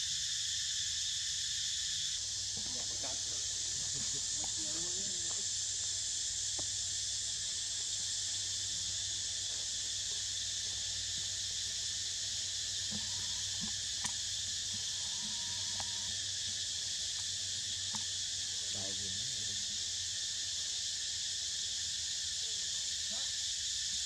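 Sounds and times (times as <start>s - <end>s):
insect chorus drone: 0.0s - 24.0s
faint ticks: 12.9s - 18.1s.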